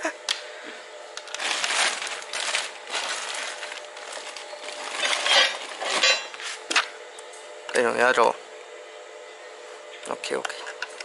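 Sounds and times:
plastic scraping and rustling: 0:01.2 - 0:06.9.

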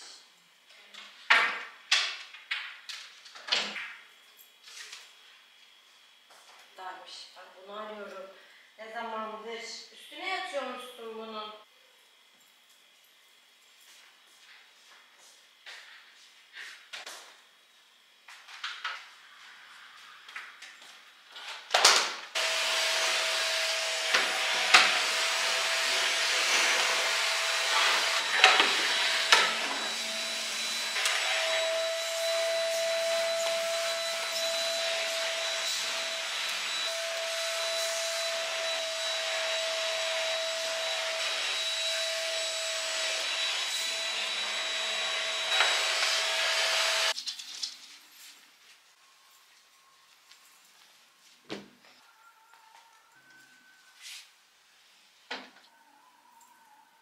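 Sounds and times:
handheld vacuum cleaner whining: 0:22.4 - 0:47.2.

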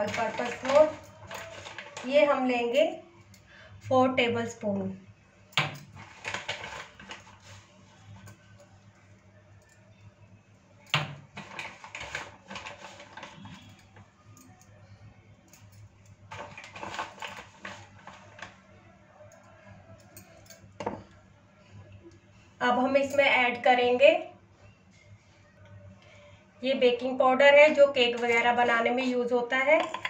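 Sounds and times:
plastic spoon tapping and scraping: 0:29.8 - 0:30.0.

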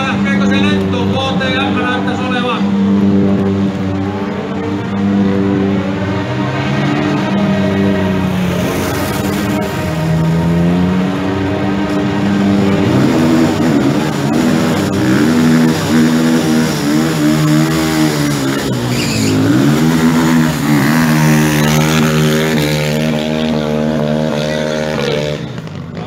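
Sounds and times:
motorcycle engine revving: 0:00.0 - 0:26.0.

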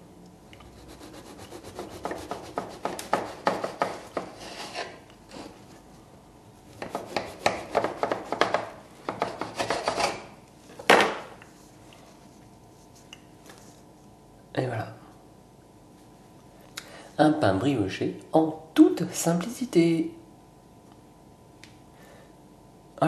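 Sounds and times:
knife sawing through bread crust: 0:00.8 - 0:05.6, 0:06.8 - 0:08.4.

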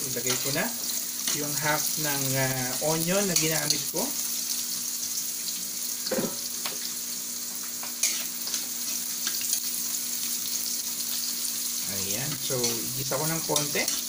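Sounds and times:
onion sizzling in hot oil: 0:00.0 - 0:14.0
metal spatula scraping wok: 0:08.0 - 0:08.6.

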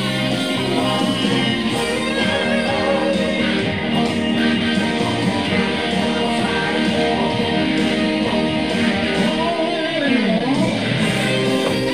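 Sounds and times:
electric guitar solo: 0:00.0 - 0:11.9.

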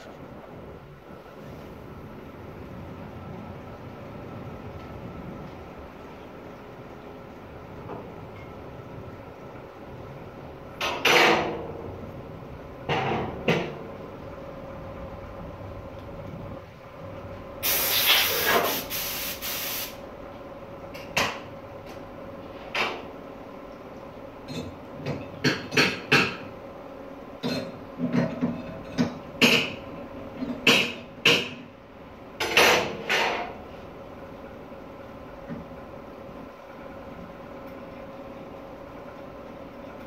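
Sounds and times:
compressed air hissing: 0:17.6 - 0:20.0.

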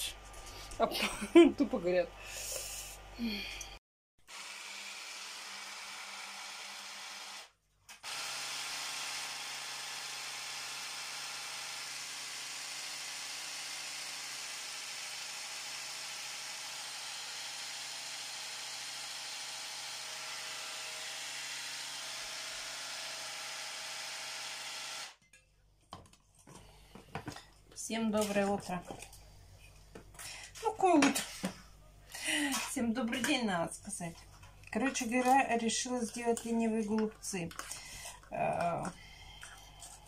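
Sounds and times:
electric hand blender running: 0:04.3 - 0:25.2.

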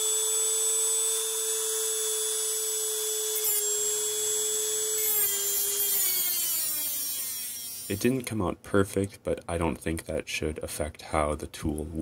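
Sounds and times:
rotary tool whining: 0:00.0 - 0:08.1
cut-off wheel grinding steel: 0:01.4 - 0:08.2.

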